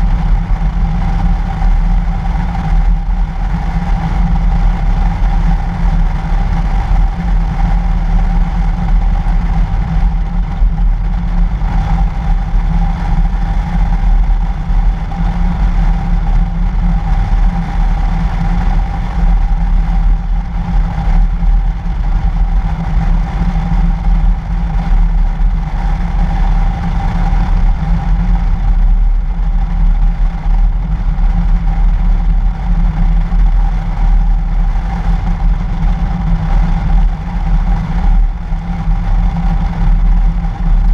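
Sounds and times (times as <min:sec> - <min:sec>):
wind rumble: 0:00.0 - 0:40.9.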